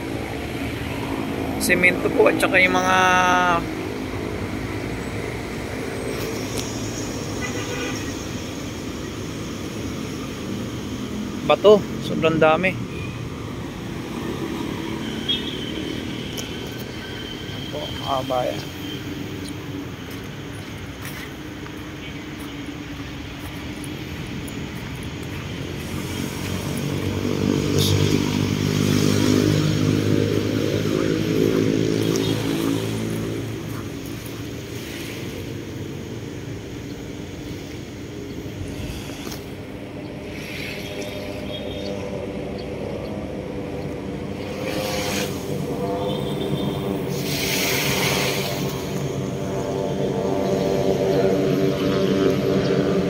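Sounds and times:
distant motor engines rumbling: 0:00.0 - 0:53.0
burst of hiss: 0:38.7 - 0:39.5, 0:47.1 - 0:48.7.

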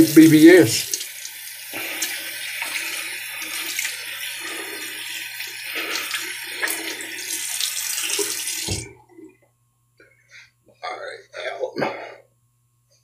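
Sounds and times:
tap water running into sink: 0:00.0 - 0:08.9.

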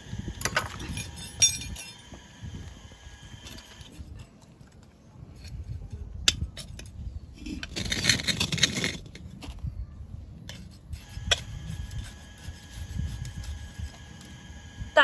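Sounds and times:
soil rustling and scraping: 0:07.2 - 0:09.8, 0:10.4 - 0:14.5.

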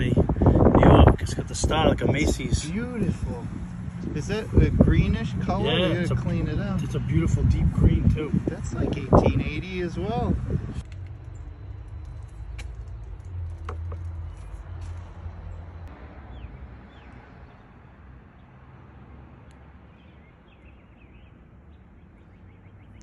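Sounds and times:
low outdoor rumble: 0:00.0 - 0:15.9
bird chirps: 0:19.9 - 0:23.0.

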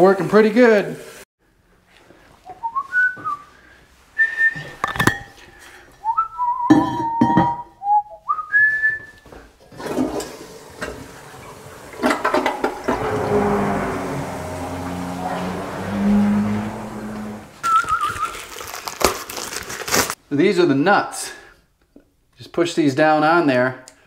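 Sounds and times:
person whistling: 0:02.5 - 0:03.6, 0:04.2 - 0:04.8, 0:06.0 - 0:09.3, 0:17.6 - 0:18.5
toilet flushing: 0:09.7 - 0:17.6
pump humming: 0:10.6 - 0:17.6.

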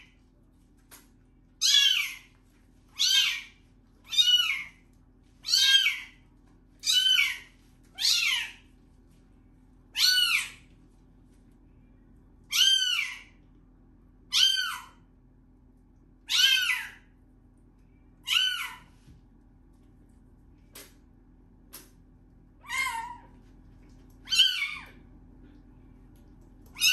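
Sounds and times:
kitten meowing loudly: 0:03.0 - 0:03.5.

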